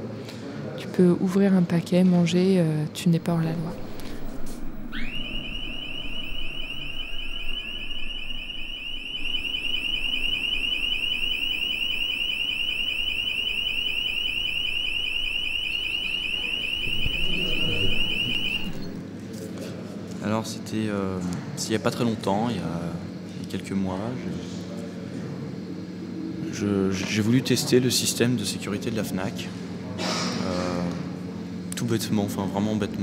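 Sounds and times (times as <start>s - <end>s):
security gate alarm tone: 3.4s - 19.0s.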